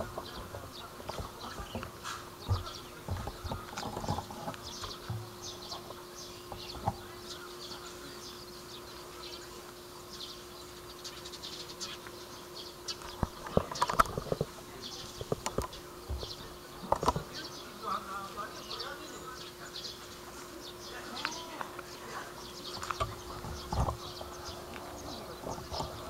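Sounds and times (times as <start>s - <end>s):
steady hum: 0.0s - 26.0s
sharp clicks and knocks: 13.0s - 17.3s.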